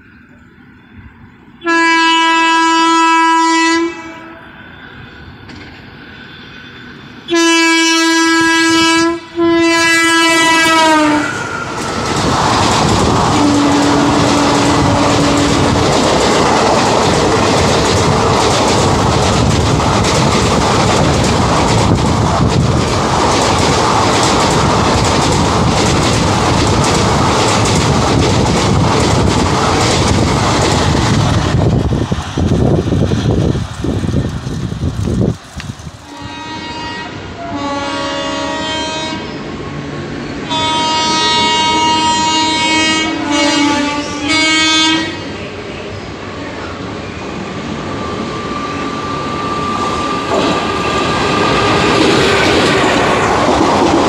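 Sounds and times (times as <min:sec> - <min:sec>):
locomotive air horn blasts: 0:01.6 - 0:04.4, 0:07.3 - 0:11.5, 0:13.4 - 0:15.6, 0:36.0 - 0:39.3, 0:40.5 - 0:45.2
train wheels clattering on track: 0:05.4 - 0:06.0, 0:11.3 - 0:36.6, 0:48.0 - 0:54.0.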